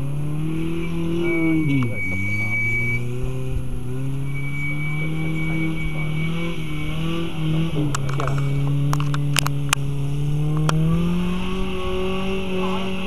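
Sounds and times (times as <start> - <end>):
off-road vehicle engine under load: 0.0 - 13.0.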